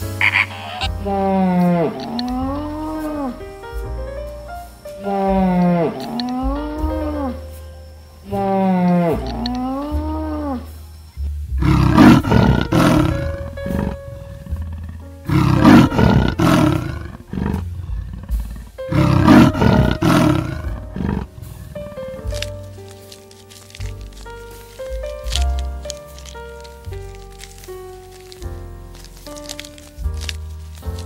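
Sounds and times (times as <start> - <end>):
soft background music: 0.0 - 31.0
leopard roaring: 0.2 - 3.3, 11.6 - 22.6.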